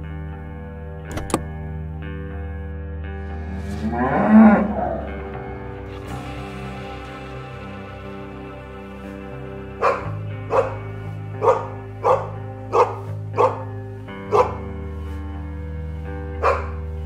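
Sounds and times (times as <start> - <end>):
background music: 0.0 - 17.0
dog barking: 9.8 - 10.8, 11.4 - 13.7, 14.3 - 14.7, 16.4 - 16.8.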